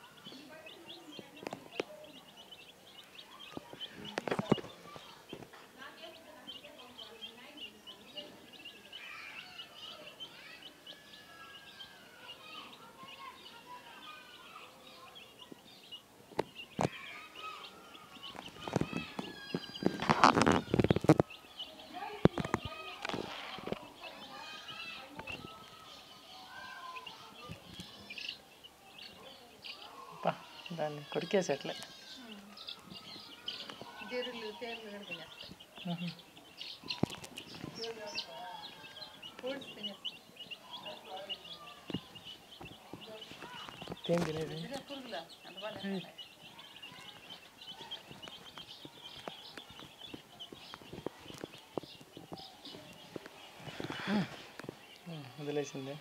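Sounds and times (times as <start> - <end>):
chicks peeping: 0.0 - 56.0.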